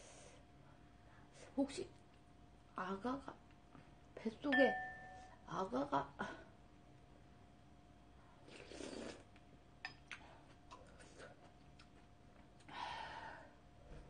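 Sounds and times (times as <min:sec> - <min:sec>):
slurps of broth from spoon: 0:08.4 - 0:09.3.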